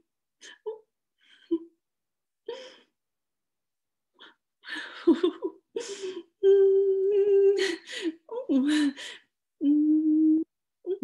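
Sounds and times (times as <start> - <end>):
woman humming: 6.4 - 7.6, 9.6 - 11.0.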